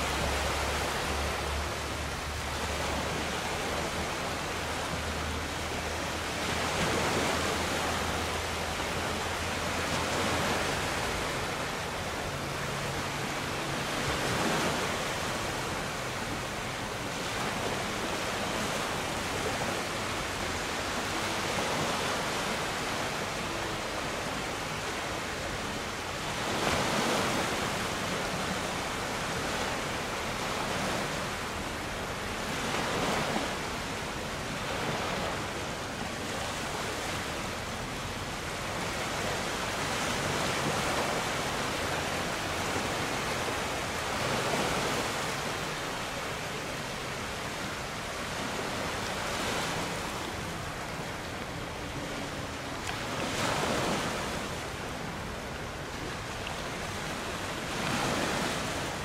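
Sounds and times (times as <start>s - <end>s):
sea water splashing: 0.0s - 59.0s.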